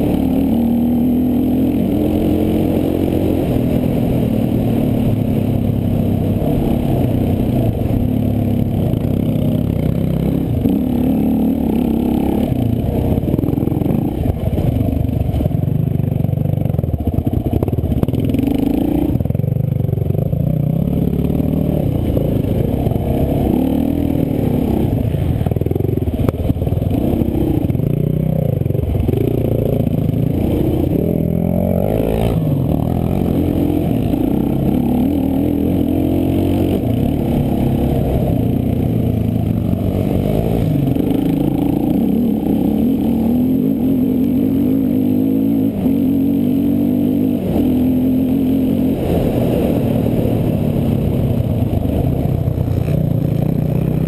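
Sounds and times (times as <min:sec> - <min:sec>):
quad engine revving: 0:00.0 - 0:15.5, 0:20.2 - 0:54.0.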